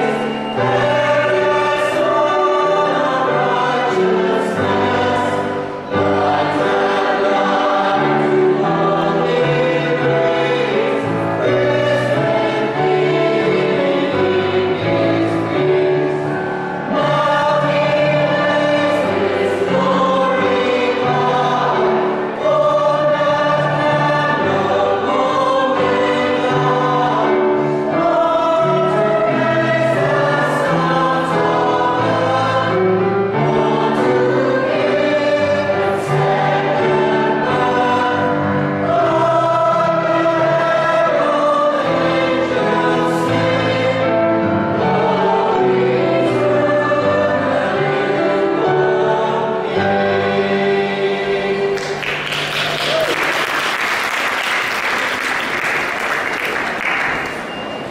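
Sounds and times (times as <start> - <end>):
mixed choir singing a carol: 0.0 - 57.9.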